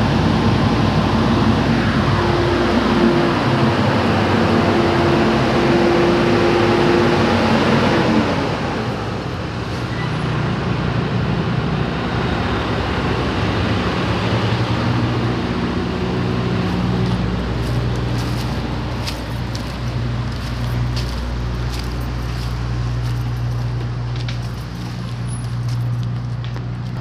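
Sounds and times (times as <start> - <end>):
vehicle engine running: 10.3 - 27.0.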